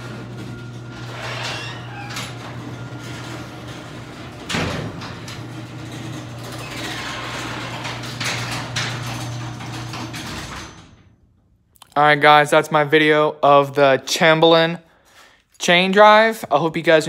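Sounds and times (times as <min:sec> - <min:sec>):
garage door opener motor hum: 0:00.0 - 0:11.3
garage door clattering: 0:00.0 - 0:11.4.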